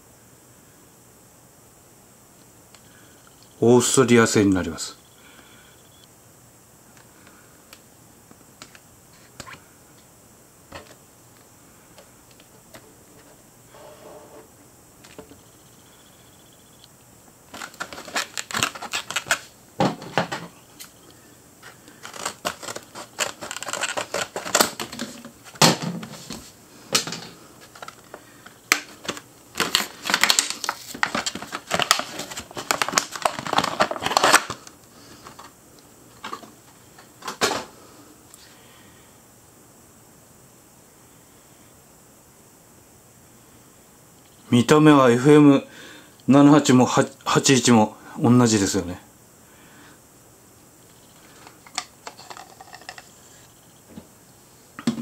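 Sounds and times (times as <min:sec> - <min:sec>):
packaging clicks and rustles: 0:17.5 - 0:20.4, 0:21.6 - 0:35.5, 0:51.2 - 0:53.1
plastic crackling and crinkling: 0:17.5 - 0:20.9, 0:21.6 - 0:35.5, 0:51.2 - 0:53.2
scissors cutting plastic packaging: 0:17.6 - 0:19.4, 0:22.0 - 0:25.0, 0:28.7 - 0:34.6.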